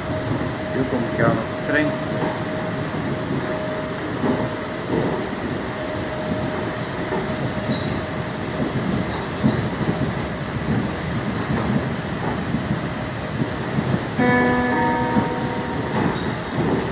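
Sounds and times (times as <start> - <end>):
train running rumble: 0.0 - 16.9
steady whine: 14.2 - 16.9.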